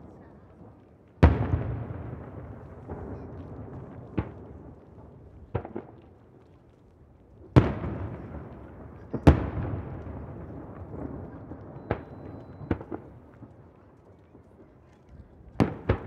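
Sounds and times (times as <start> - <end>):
firework booms with echoing rumble: 0.0 - 13.7, 15.3 - 16.0
small firework pops: 0.0 - 16.0
sharp firework crack: 1.2 - 6.4, 15.6 - 16.0.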